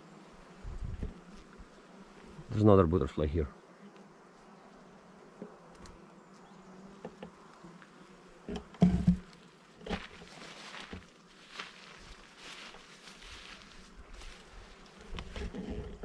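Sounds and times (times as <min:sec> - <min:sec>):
bees buzzing: 0:00.0 - 0:16.0
thumps or rustles: 0:08.5 - 0:11.1.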